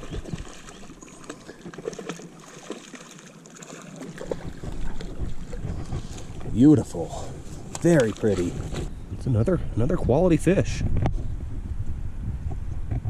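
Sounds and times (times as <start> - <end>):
water splashing and dripping: 0.0 - 6.5, 7.7 - 8.6
wind rumble on microphone: 4.3 - 13.0.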